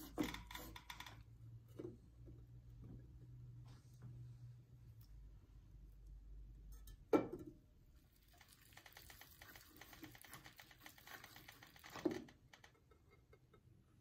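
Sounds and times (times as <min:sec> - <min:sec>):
wax clicking and crackling on hot pot: 0:08.1 - 0:13.1.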